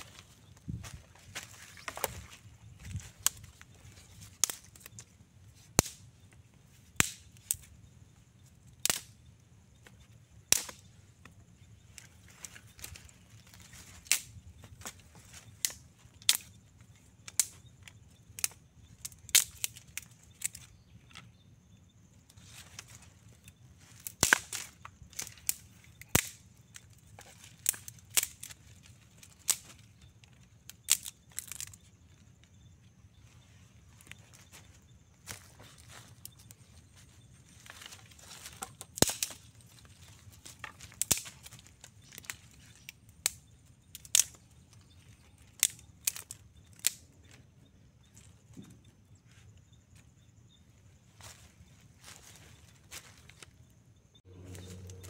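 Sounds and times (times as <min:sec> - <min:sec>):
dry twigs snapping: 0:00.1 - 0:06.3, 0:07.0 - 0:07.7, 0:08.8 - 0:09.2, 0:09.8 - 0:21.2, 0:22.6 - 0:32.6, 0:37.5 - 0:47.4.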